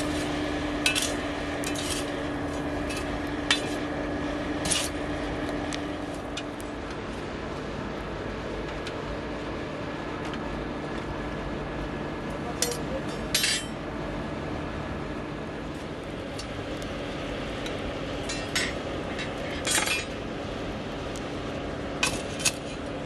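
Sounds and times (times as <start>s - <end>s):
forge fire rushing: 0.0s - 8.1s.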